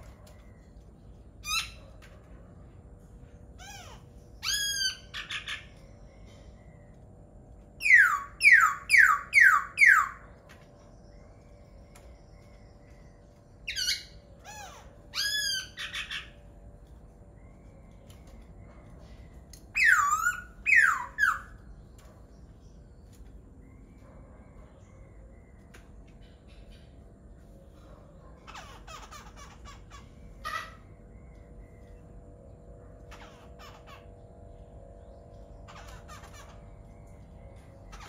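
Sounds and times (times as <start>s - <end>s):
bird singing loud phrases: 7.7s - 16.6s, 19.1s - 23.2s.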